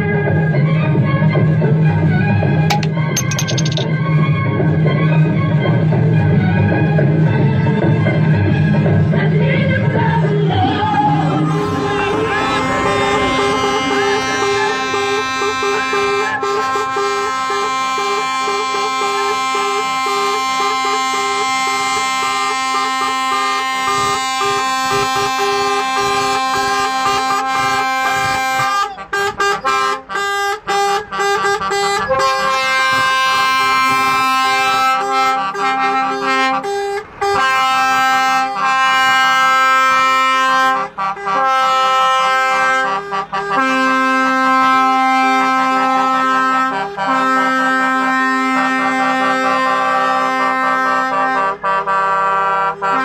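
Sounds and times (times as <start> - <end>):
music of long held chords: 9.8 - 16.2.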